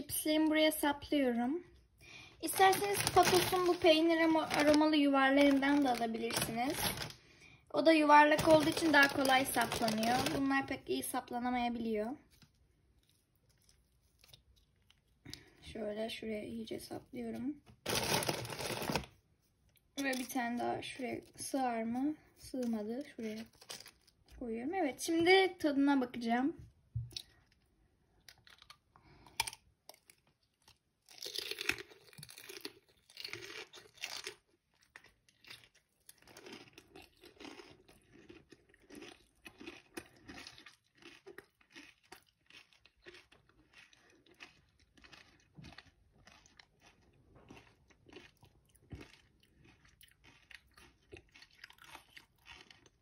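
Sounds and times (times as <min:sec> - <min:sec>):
crunching pepper: 0:02.4 - 0:07.3, 0:08.2 - 0:10.7, 0:17.8 - 0:19.2, 0:22.4 - 0:24.3, 0:28.3 - 0:53.0
chewing: 0:12.2 - 0:15.6, 0:27.1 - 0:53.0.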